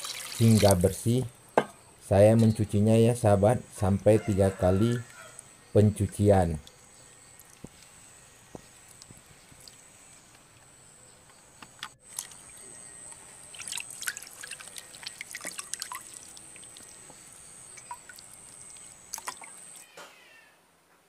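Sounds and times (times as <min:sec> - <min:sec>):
water splashing and dripping: 0:00.0 - 0:00.9, 0:08.9 - 0:10.7, 0:12.0 - 0:19.8.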